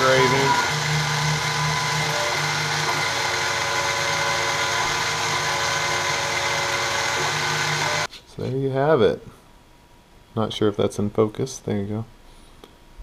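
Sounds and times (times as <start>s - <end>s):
milling machine motor whine: 0.0s - 8.1s.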